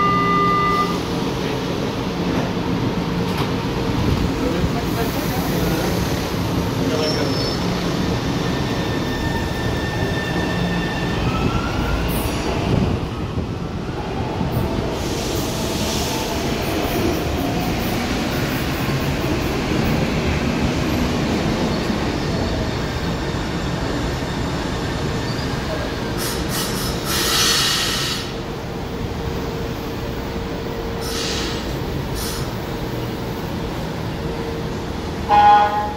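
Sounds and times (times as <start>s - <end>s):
train wheels rumbling on rails: 0.8s - 35.9s
short hisses: 31.0s - 31.6s.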